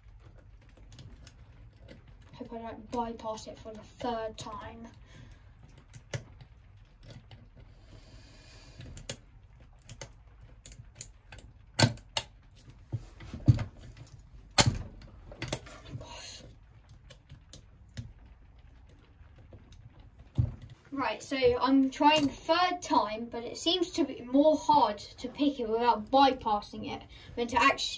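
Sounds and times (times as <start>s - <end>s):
lock pick clicking in padlock: 11.8s - 12.3s.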